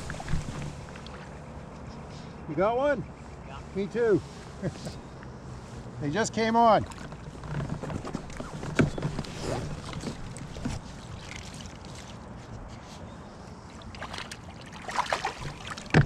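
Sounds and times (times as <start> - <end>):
wind: 0.0 - 16.0
lapping water: 9.5 - 12.4, 13.7 - 16.0
fish splashing at surface: 13.8 - 16.0.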